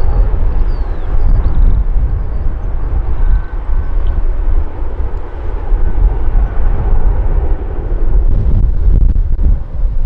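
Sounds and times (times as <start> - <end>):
jet engine roar: 0.0 - 10.0
wind buffeting microphone: 0.0 - 10.0.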